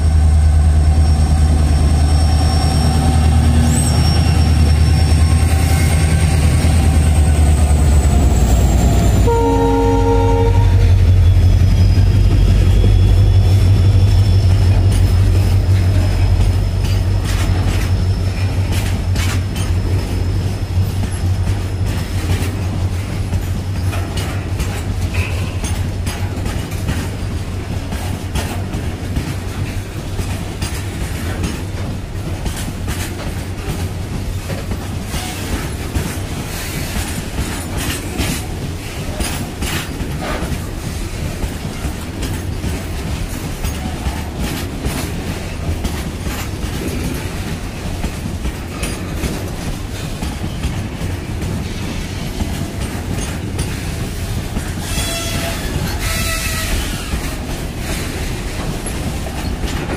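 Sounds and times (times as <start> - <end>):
diesel locomotives rumbling: 0.0 - 59.9
train horn blast: 9.2 - 11.2, 54.8 - 56.9
wheels clicking over rail joints: 14.7 - 59.9.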